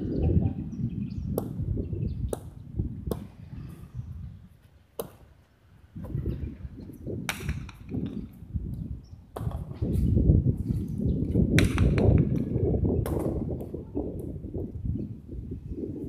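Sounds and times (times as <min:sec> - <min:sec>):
ball cracking against wall: 0:11.5 - 0:13.6.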